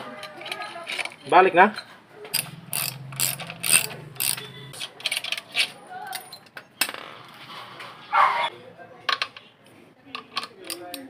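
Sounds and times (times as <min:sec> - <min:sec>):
low hum: 0:02.3 - 0:04.8
metallic tool clicks and clatter: 0:02.4 - 0:06.4.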